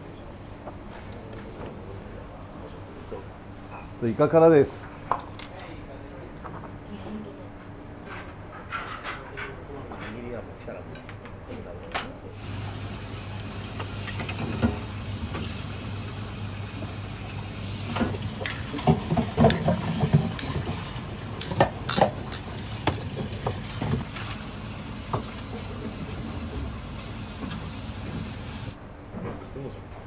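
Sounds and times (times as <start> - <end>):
spoon scraping bowls: 18.4 - 24.0
ceramic bowls clinking: 21.4 - 23.6.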